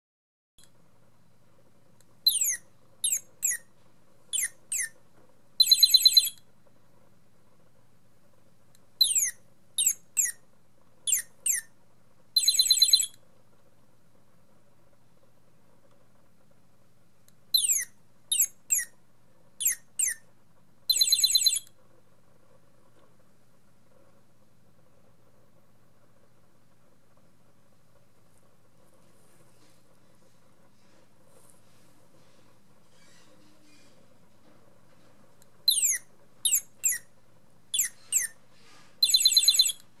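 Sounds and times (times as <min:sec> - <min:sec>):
toy bird song whistles and trill: 0:02.2 - 0:03.7, 0:04.3 - 0:05.0, 0:05.6 - 0:06.4, 0:09.0 - 0:10.4, 0:11.1 - 0:11.7, 0:12.4 - 0:13.2, 0:17.5 - 0:19.0, 0:19.6 - 0:20.2, 0:20.9 - 0:21.7, 0:35.7 - 0:37.1, 0:37.7 - 0:38.4, 0:39.0 - 0:39.8.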